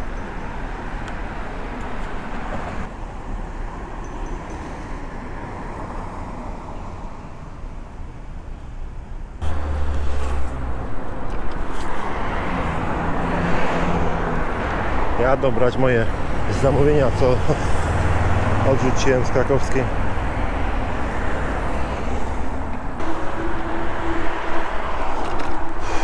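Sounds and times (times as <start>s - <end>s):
road traffic noise: 0.0s - 26.0s
wind: 0.0s - 26.0s.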